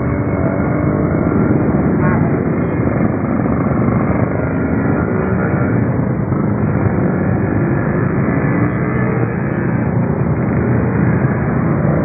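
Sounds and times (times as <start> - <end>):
motorbike traffic on wet road: 0.0 - 12.0.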